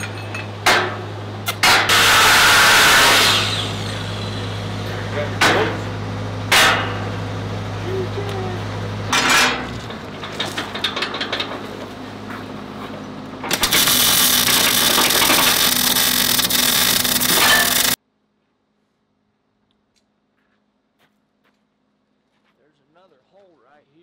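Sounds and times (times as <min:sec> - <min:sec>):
angle grinder cutting steel: 0:01.7 - 0:05.0, 0:13.5 - 0:18.0
light metal clatter: 0:09.1 - 0:11.9
welding arc crackling: 0:13.5 - 0:18.0.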